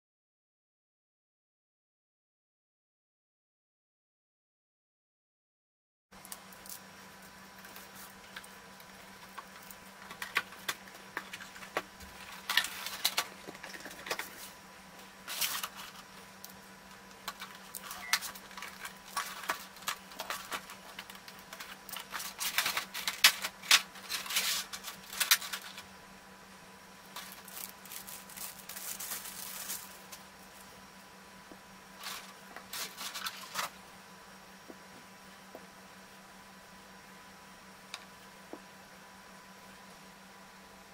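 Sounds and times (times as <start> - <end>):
faint steady hum: 6.1 - 40.9
plastic and cardboard crackling: 7.6 - 25.9, 27.1 - 30.7, 32.0 - 33.8.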